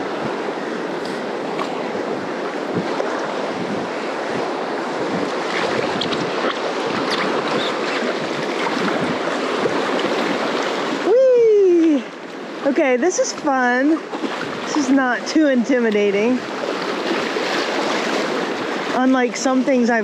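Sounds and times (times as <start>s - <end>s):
whitewater rushing: 0.0s - 20.0s
light water splashes: 5.0s - 20.0s.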